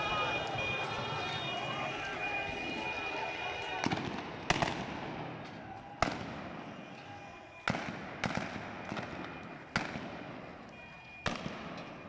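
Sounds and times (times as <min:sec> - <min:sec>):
gunshots echoing: 0:03.8 - 0:05.4, 0:06.0 - 0:06.9, 0:07.7 - 0:10.6, 0:11.2 - 0:12.0.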